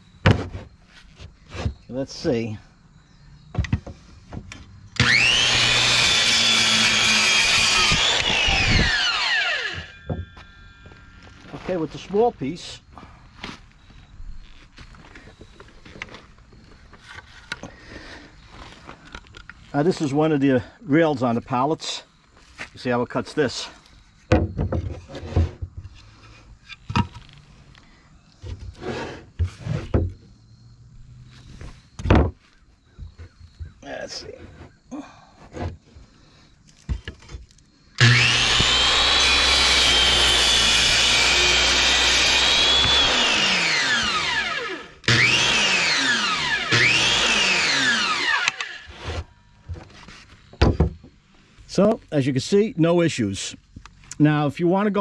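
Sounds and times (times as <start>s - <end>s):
wood scraping: 0.2s - 2.4s, 3.6s - 20.3s, 22.3s - 30.3s, 31.2s - 52.0s
circular saw whine: 4.8s - 17.7s, 37.9s - 50.4s
saw cutting through board: 5.0s - 11.0s, 28.7s - 30.0s, 38.0s - 49.3s.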